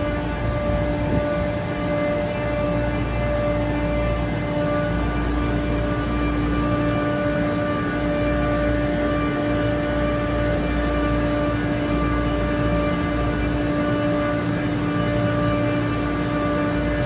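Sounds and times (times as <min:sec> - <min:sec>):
chiller compressors humming: 0:00.0 - 0:17.0.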